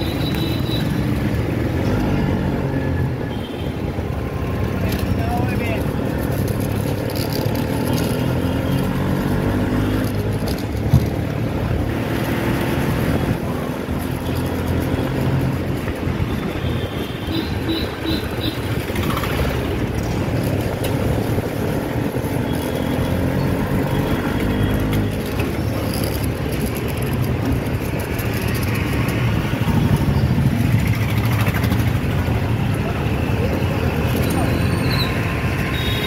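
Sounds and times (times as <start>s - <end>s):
road noise: 0.0s - 36.0s.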